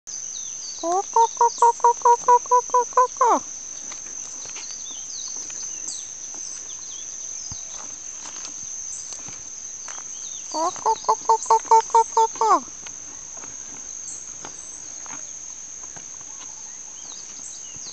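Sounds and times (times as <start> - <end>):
high insect drone: 0.1 - 17.9
chicken cackling: 0.8 - 3.4, 10.6 - 12.7.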